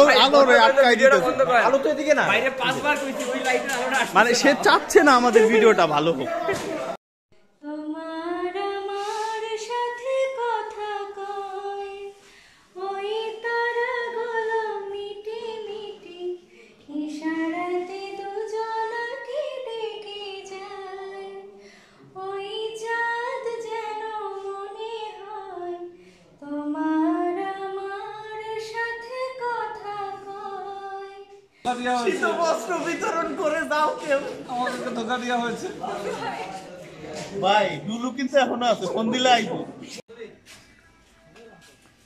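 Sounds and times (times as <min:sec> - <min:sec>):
woman singing unaccompanied: 0:07.6 - 0:12.2, 0:12.8 - 0:21.5, 0:22.2 - 0:31.4.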